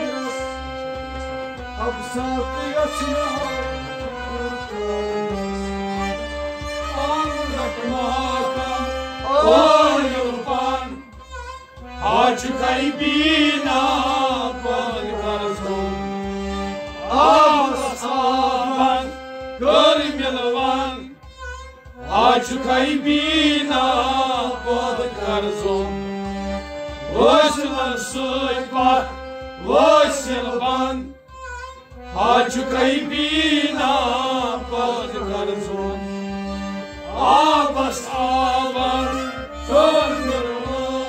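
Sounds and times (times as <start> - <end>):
man singing: 0.0 - 0.6, 1.8 - 5.1, 7.0 - 11.0, 12.0 - 15.8, 17.1 - 21.2, 22.1 - 25.7, 27.1 - 31.1
harmonium chords: 0.0 - 41.0
steady low beat: 0.3 - 41.0.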